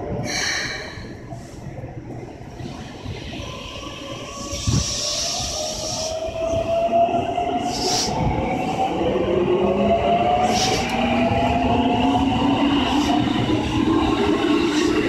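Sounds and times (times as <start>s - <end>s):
hiss: 4.4s - 6.2s, 7.6s - 8.2s, 10.4s - 10.9s.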